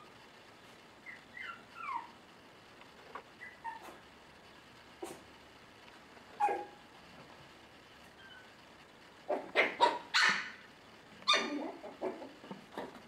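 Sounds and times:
puppies yipping and barking: 1.0 - 2.2, 3.4 - 4.0, 9.3 - 10.6, 11.3 - 13.0.

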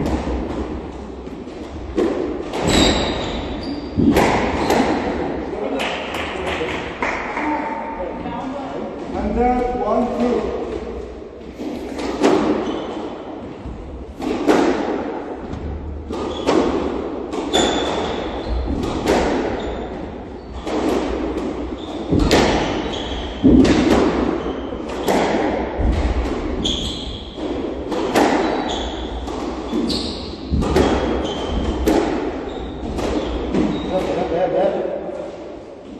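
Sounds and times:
squash ball hitting racquets and walls: 0.0 - 7.6, 8.9 - 35.9
shoes squeaking on wooden floor: 2.6 - 4.8, 21.8 - 23.6, 26.6 - 27.4, 28.1 - 34.0.

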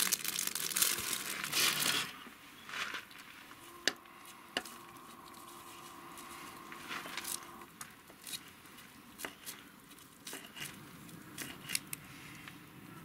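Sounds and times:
plastic packet crinkling: 0.0 - 3.3.

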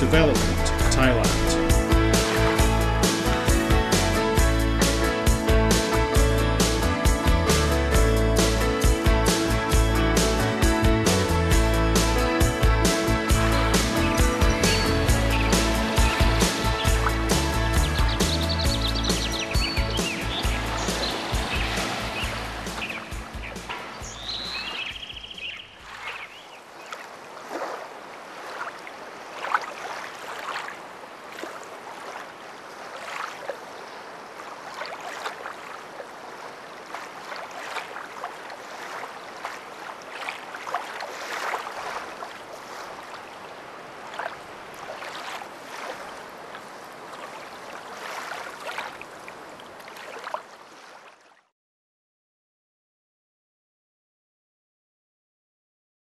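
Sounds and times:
background music: 0.0 - 25.2
water washing and splashing: 0.0 - 51.4.

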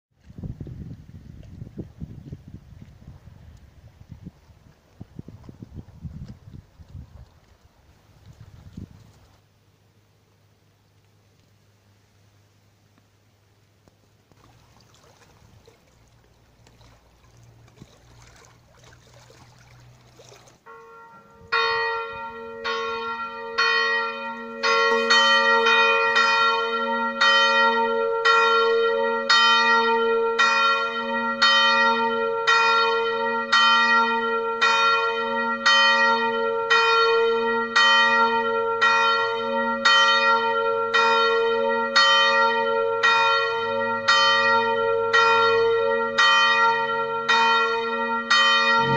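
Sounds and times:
faint outdoor noise: 0.1 - 48.9
church bells ringing: 20.7 - 48.9.

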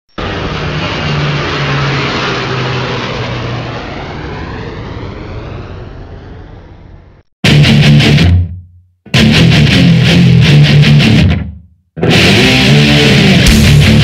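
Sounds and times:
jet aircraft flyby: 0.1 - 7.3.

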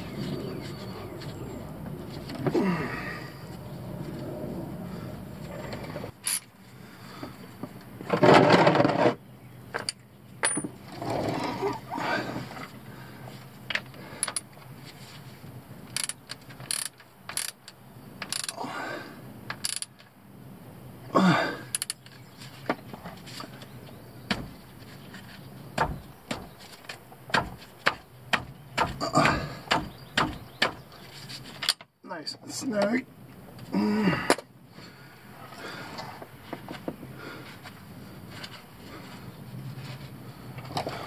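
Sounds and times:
ratchet and metal tools clicking: 15.9 - 18.6, 19.5 - 20.0, 21.7 - 22.0
sharp knocks: 24.3 - 24.6, 25.8 - 26.6, 27.3 - 30.8.

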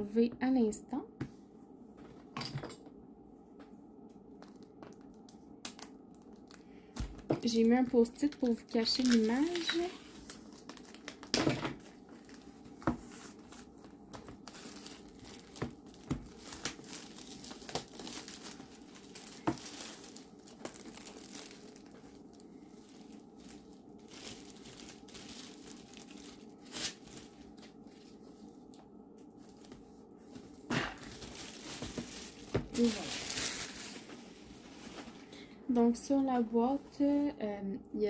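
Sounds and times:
plastic shrink-wrap crinkling and tearing: 4.4 - 27.8, 30.8 - 35.5.

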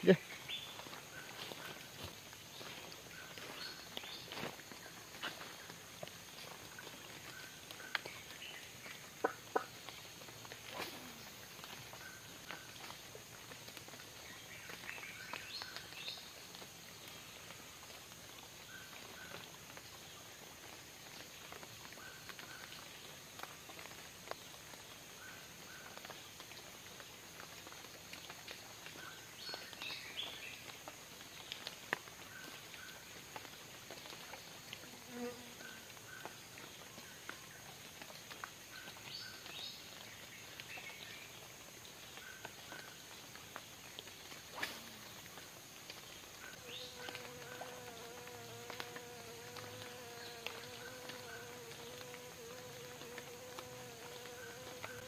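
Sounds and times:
light rain on water: 0.0 - 55.0
high insect drone: 46.4 - 55.0.

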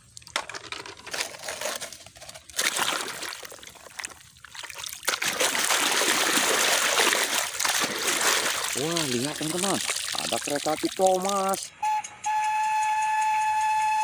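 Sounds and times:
water splashing and sloshing: 0.0 - 11.7
rushing water: 2.6 - 11.7.

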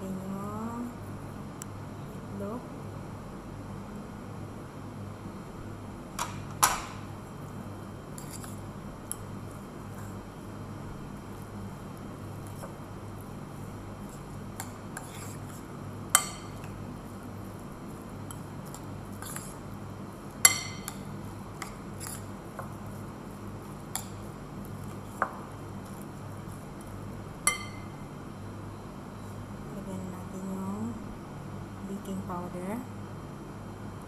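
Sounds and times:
spoon scraping in glass bowl: 8.2 - 8.6, 15.0 - 15.6, 18.3 - 19.6, 21.6 - 22.3.

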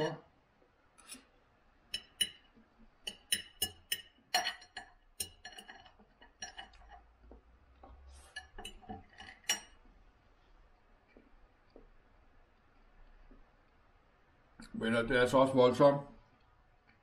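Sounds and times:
knife and fork scraping a plate: 1.0 - 1.3, 3.1 - 7.1, 8.1 - 9.8.

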